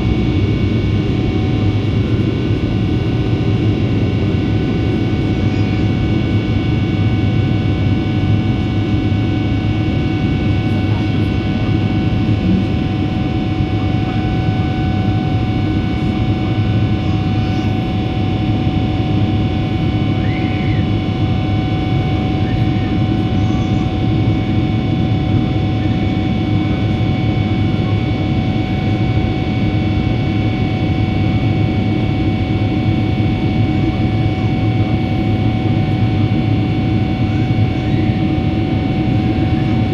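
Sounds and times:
jet engine cabin roar: 0.0 - 39.9.

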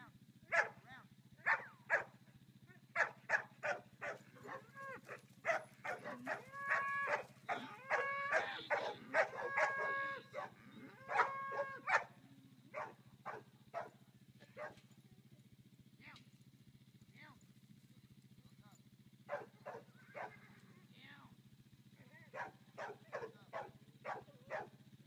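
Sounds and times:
cattle bawling: 3.0 - 13.9, 19.3 - 20.7.

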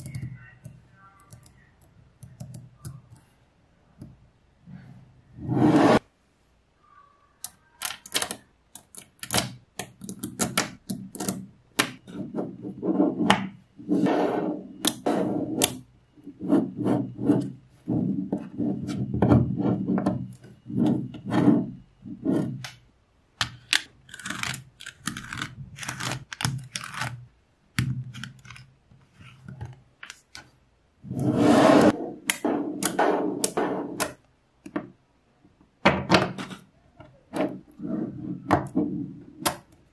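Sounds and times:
balls rubbing and rolling: 4.6 - 6.1, 9.1 - 22.8, 23.4 - 34.2, 36.3 - 39.7.

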